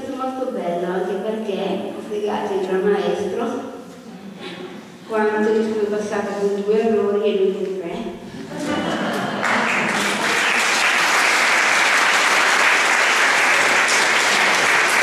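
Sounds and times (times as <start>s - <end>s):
audience applauding: 9.1s - 15.0s.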